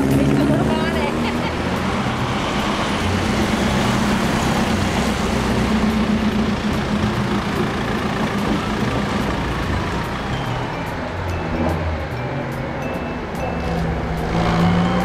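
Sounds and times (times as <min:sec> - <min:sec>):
car engine running at low revs: 0:00.0 - 0:10.6.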